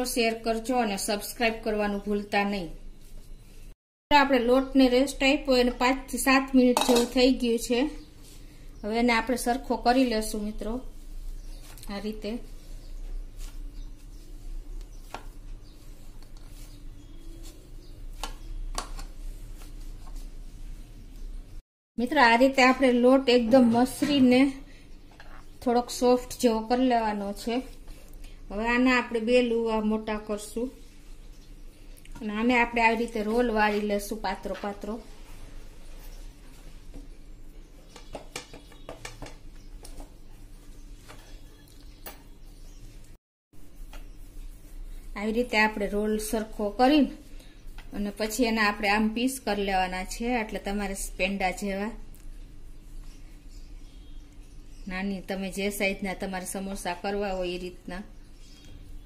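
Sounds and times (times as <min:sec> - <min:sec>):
hands kneading dough: 0:07.1 - 0:21.4, 0:23.6 - 0:53.5.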